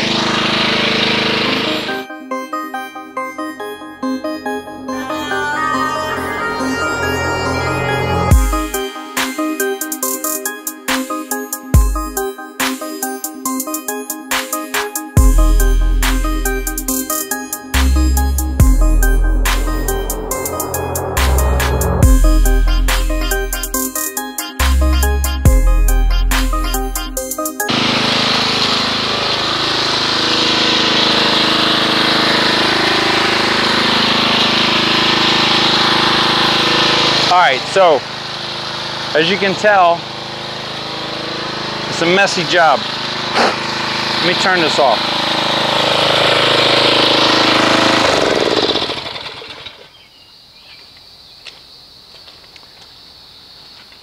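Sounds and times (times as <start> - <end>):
pressure washer engine running: 0.0 - 2.1, 15.1 - 24.0, 27.2 - 50.0.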